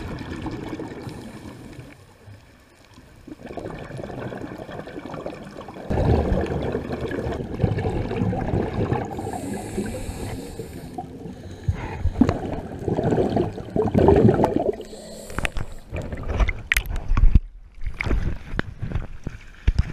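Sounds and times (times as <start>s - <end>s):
underwater exhaled bubbles rushing: 0.0s - 2.0s, 3.0s - 16.8s
water splashes: 0.0s - 19.9s.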